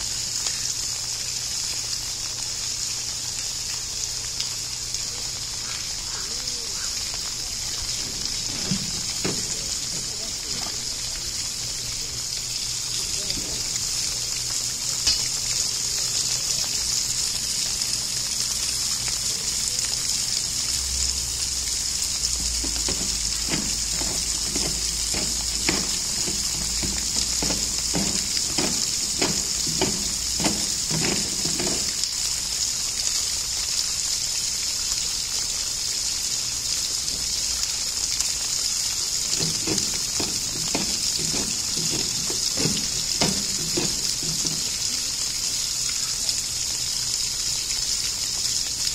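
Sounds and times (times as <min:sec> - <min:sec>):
running water hiss: 0:00.0 - 0:48.9
knocks and scrapes on plastic tank: 0:08.0 - 0:10.1, 0:22.4 - 0:32.0, 0:39.3 - 0:44.8.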